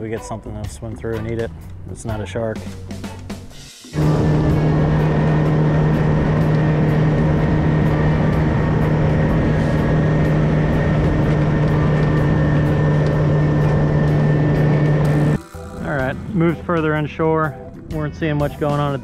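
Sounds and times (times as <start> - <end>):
outboard motor drone: 3.9 - 17.7.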